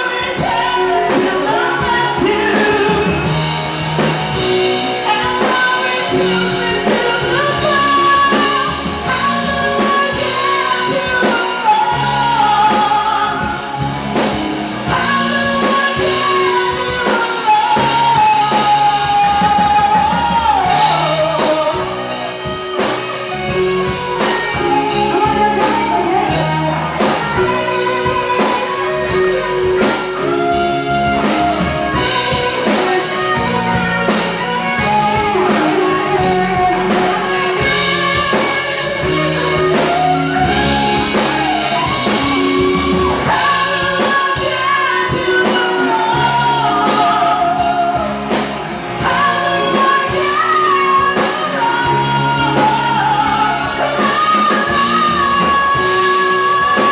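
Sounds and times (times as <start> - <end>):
electric bass: 0.0 - 56.9
electric guitar: 0.0 - 56.9
person singing: 0.0 - 56.9.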